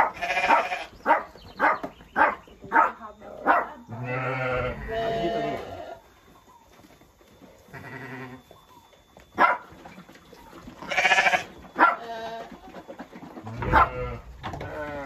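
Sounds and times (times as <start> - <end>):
sheep bleating: 0.1 - 0.9, 4.0 - 6.0, 7.7 - 8.4, 10.8 - 12.5, 13.4 - 15.0.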